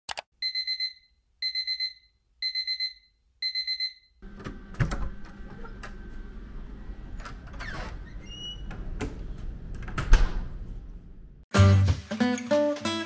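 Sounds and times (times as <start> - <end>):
electronic alarm beeping: 0.4 - 4.2.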